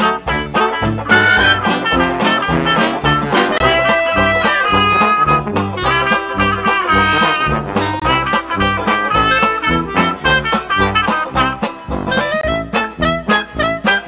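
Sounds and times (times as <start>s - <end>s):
upbeat jazzy brass music: 0.0s - 14.0s.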